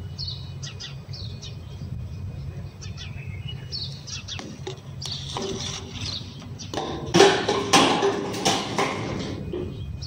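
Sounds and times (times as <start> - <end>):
knocks against metal bin: 6.8 - 9.7.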